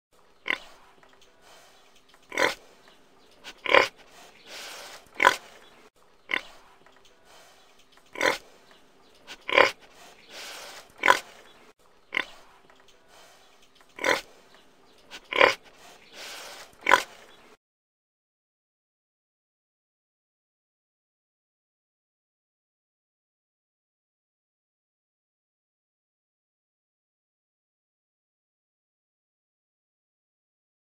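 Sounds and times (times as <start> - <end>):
pig grunting: 0.4 - 17.6.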